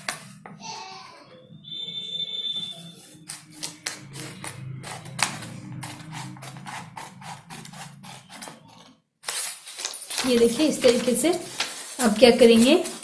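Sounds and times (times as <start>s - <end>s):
thin high whine: 0.6s - 8.9s
scissors snipping paper: 3.2s - 13.0s.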